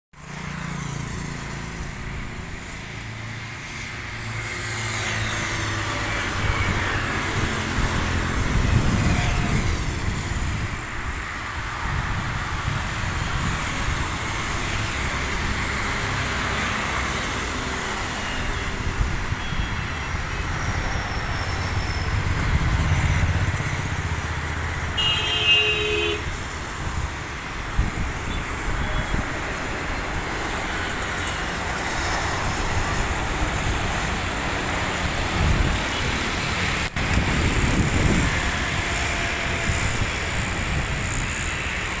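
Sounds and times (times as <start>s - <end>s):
road traffic rumble: 0.2s - 42.0s
vehicle horn tooting: 8.8s - 9.7s, 25.0s - 26.3s, 28.3s - 29.3s.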